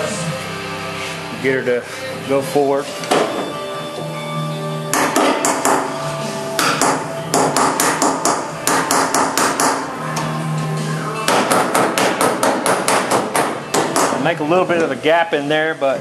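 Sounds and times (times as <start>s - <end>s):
hammer striking sheet metal: 4.9s - 6.0s, 6.6s - 9.9s, 11.3s - 14.3s.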